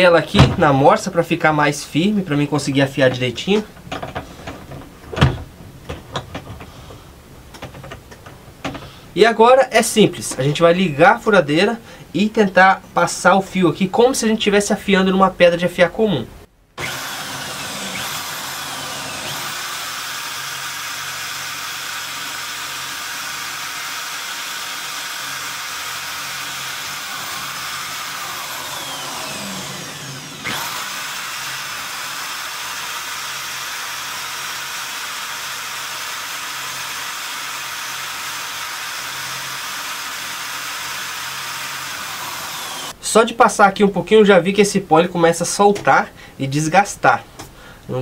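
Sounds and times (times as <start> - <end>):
electric drill running: 16.8 - 43.0.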